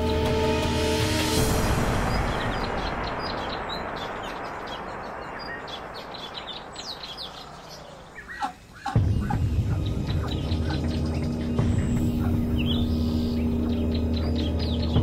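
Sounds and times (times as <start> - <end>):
background music: 0.0 - 15.0
ducklings peeping: 5.4 - 15.0.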